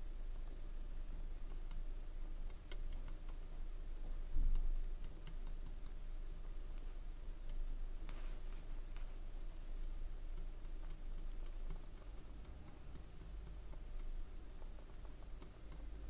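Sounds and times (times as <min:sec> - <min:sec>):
steady low hum: 0:00.0 - 0:16.0
light clicks and ticks: 0:01.4 - 0:08.2, 0:10.0 - 0:16.0.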